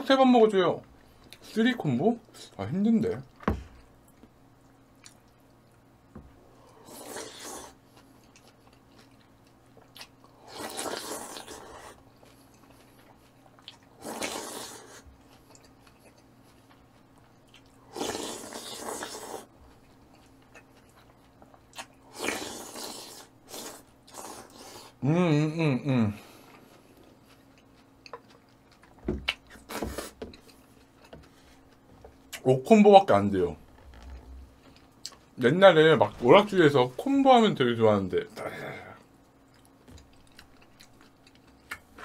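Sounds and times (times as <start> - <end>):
wet biting and chewing: 7.1 - 24.6, 26.5 - 32.4, 39.3 - 42.0.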